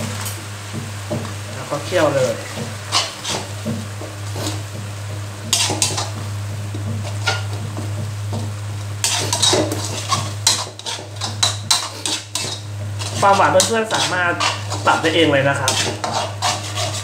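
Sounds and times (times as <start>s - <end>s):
metal utensil scraping a wok: 1.9s - 4.7s, 5.4s - 6.2s, 7.0s - 7.6s, 9.0s - 17.0s.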